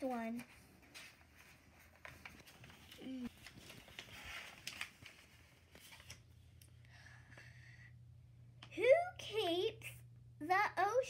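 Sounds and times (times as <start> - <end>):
book pages turning: 0.4 - 6.6.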